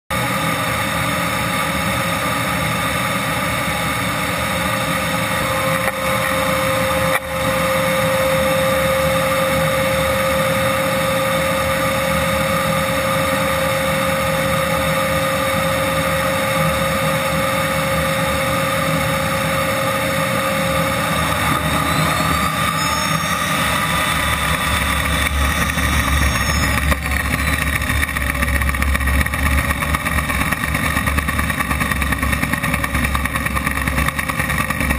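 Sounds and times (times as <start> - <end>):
jet turbine engine whining: 0.1 - 34.9
low rumble: 19.1 - 34.9.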